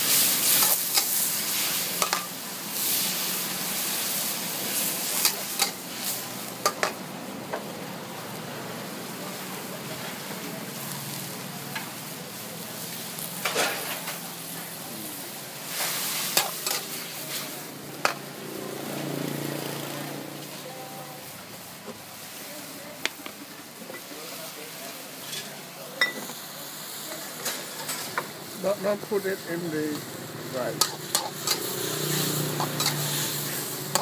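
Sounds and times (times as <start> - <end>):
rice sizzling in a hot pan: 0.0 - 34.0
spatula clanking and scraping pan: 0.4 - 1.2, 1.9 - 2.4, 5.1 - 5.8, 6.6 - 7.0, 13.4 - 14.2, 15.7 - 18.3, 25.2 - 26.4, 27.4 - 28.3, 30.8 - 34.0.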